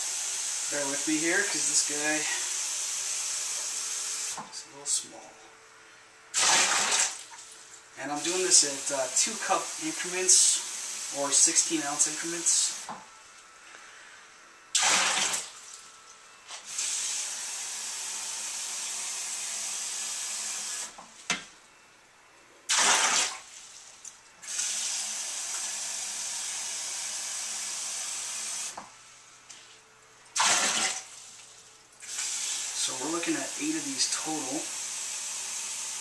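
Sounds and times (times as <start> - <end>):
water gushing: 0.0 - 4.4, 6.4 - 12.9, 14.8 - 15.8, 16.7 - 20.9, 22.7 - 28.7, 30.4 - 36.0.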